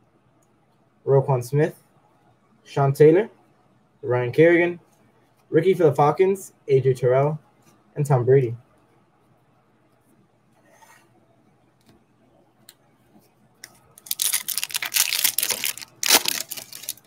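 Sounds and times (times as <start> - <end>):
foil wrapper crinkling and tearing: 13.7 - 17.0.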